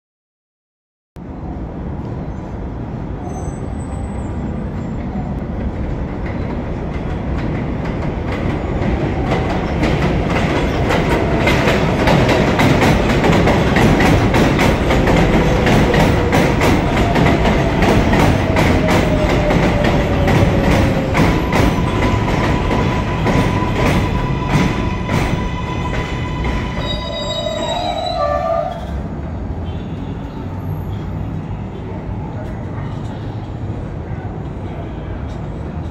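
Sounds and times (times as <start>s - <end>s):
train rumble: 1.2s - 35.9s.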